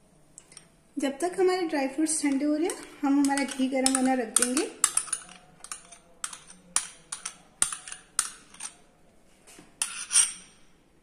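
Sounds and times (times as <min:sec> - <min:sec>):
spoon scraping a frying pan: 0:02.1 - 0:08.9, 0:09.8 - 0:10.7
spoon tapping a frying pan: 0:02.3 - 0:08.7.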